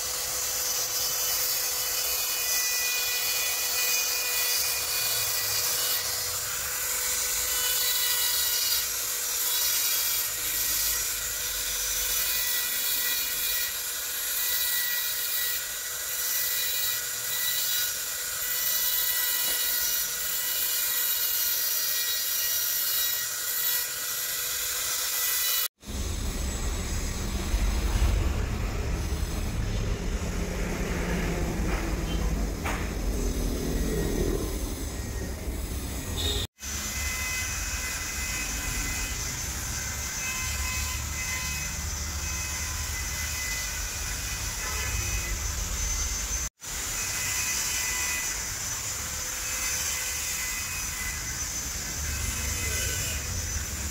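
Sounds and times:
rotary engraving tool grinding stone: 0:00.0 - 0:25.9, 0:33.0 - 0:53.9
low rumbling noise: 0:25.8 - 0:36.5.

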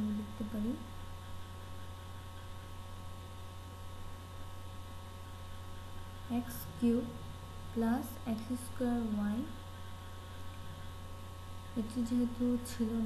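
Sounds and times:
person speaking: 0:00.0 - 0:00.9, 0:11.8 - 0:13.0
low electrical hum: 0:00.0 - 0:13.0.

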